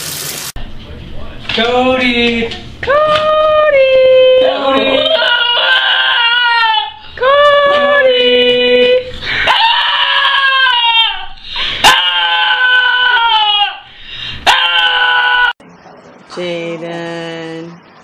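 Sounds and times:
dog howling: 0:03.0 - 0:08.0, 0:09.4 - 0:15.6.

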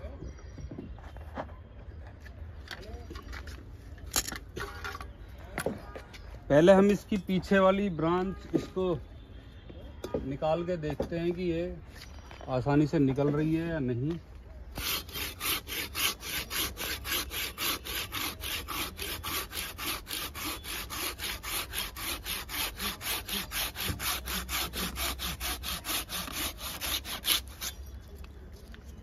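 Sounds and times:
hand saw cutting branch: 0:14.8 - 0:27.8.

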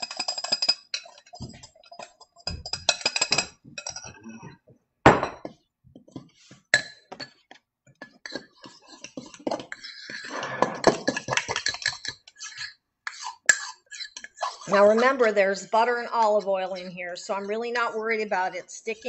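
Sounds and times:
spoon scraping ceramic bowl: 0:00.0 - 0:04.1, 0:08.0 - 0:19.0.

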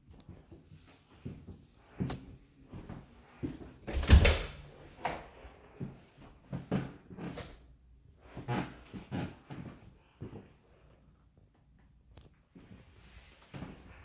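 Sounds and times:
closet door opening: 0:03.9 - 0:05.2.

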